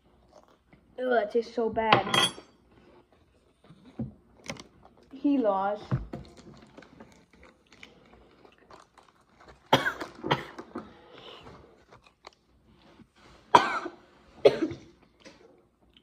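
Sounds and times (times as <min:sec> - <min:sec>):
boy coughing: 0:09.7 - 0:10.6, 0:13.5 - 0:14.9.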